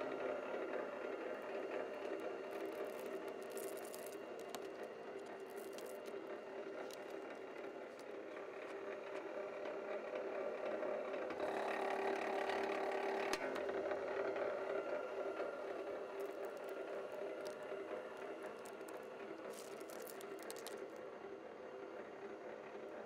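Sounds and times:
wire stripper motor humming: 0:00.0 - 0:21.0
blade slitting wire insulation: 0:02.0 - 0:08.1, 0:18.4 - 0:20.8.

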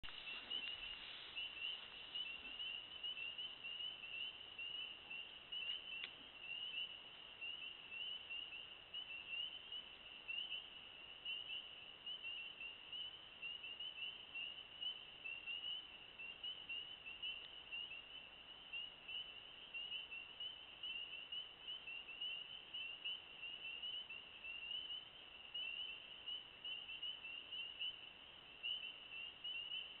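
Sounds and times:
frogs calling in chorus: 0:00.1 - 0:30.0
faint click: 0:05.6 - 0:06.2, 0:17.4 - 0:17.6.

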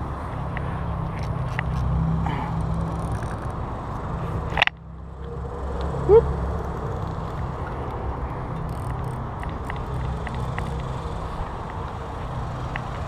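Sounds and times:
highway traffic rumble: 0:00.0 - 0:13.0.

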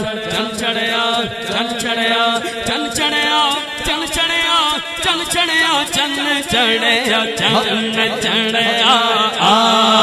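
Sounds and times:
man singing unaccompanied: 0:00.0 - 0:10.0.

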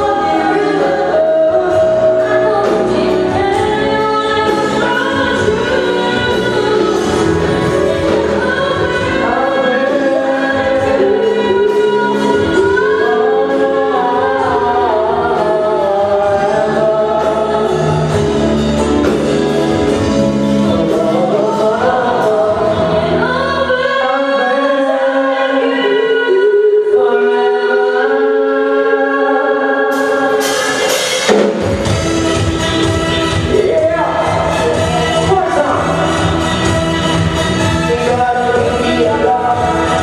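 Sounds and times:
live band playing: 0:00.0 - 0:40.0
sung vocals: 0:00.0 - 0:40.0.

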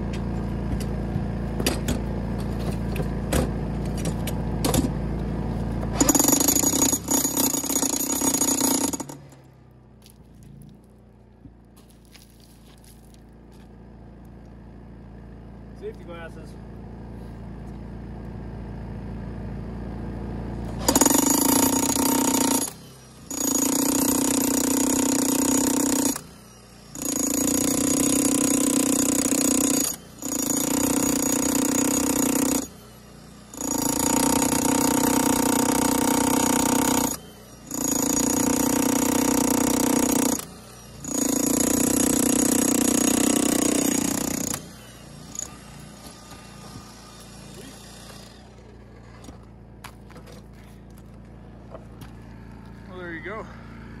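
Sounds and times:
demolition hammer chiselling concrete: 0:05.8 - 0:09.4, 0:20.7 - 0:49.3.

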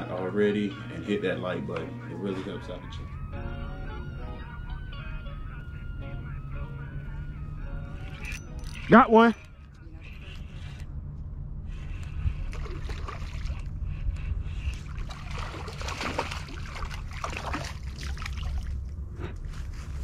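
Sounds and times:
wind rumble on microphone: 0:09.8 - 0:17.2
fish splashing in water: 0:12.4 - 0:13.8, 0:14.6 - 0:18.9.

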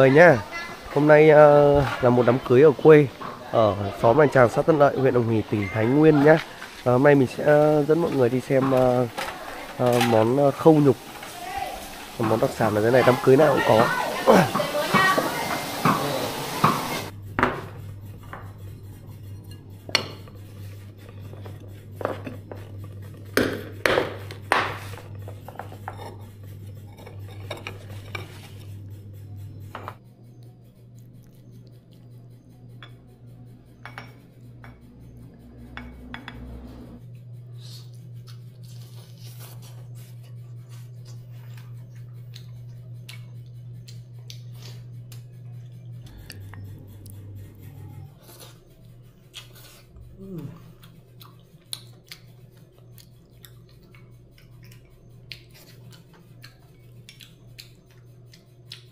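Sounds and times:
steady low hum: 0:00.0 - 0:58.9
dishes and cutlery clinking: 0:01.8 - 0:28.7, 0:32.7 - 0:37.0.

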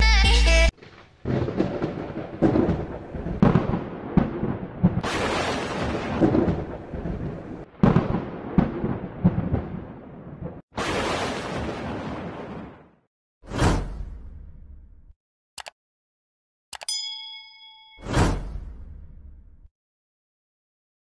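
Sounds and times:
crackling lightning strikes: 0:00.8 - 0:12.9
rolling thunder: 0:00.8 - 0:12.9.

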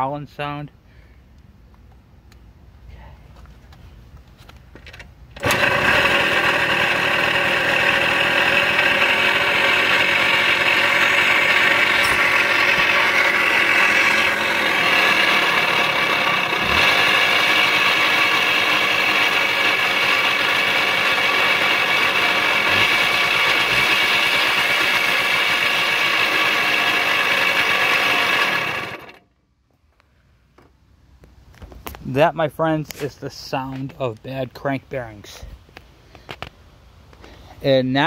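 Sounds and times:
two-stroke engine running with growl: 0:05.4 - 0:29.2.

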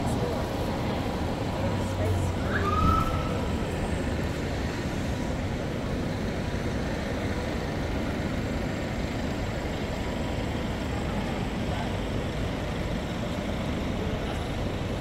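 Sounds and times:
distant traffic rumble: 0:00.0 - 0:15.0
urban hum: 0:00.0 - 0:15.0.

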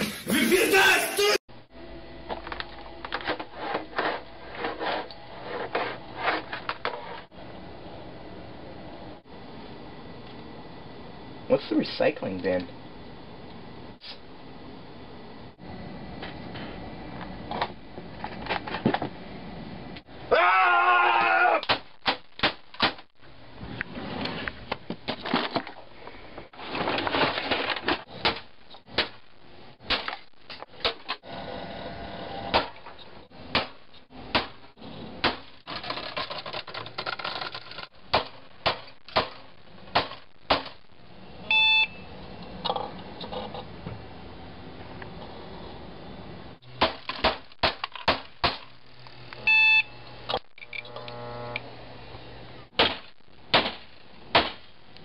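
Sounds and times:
computer casing being smashed: 0:35.2 - 0:40.8, 0:46.8 - 0:48.7, 0:52.8 - 0:54.7
debris clattering: 0:35.3 - 0:37.9
short beep: 0:41.5 - 0:42.1.

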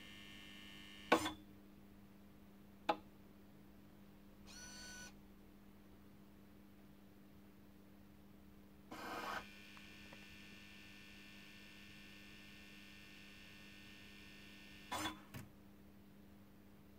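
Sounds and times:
mains hum: 0:00.0 - 0:16.9.

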